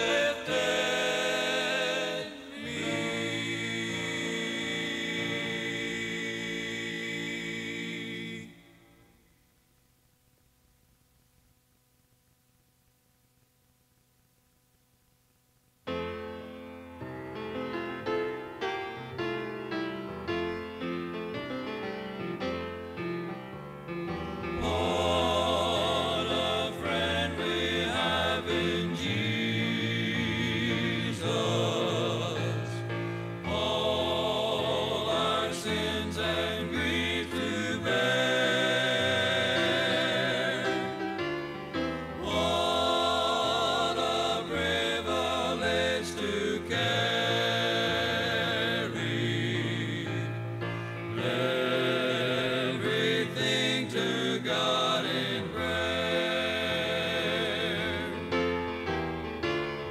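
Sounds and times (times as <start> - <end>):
vocal quartet singing a hymn: 0.0 - 9.3, 23.8 - 59.9.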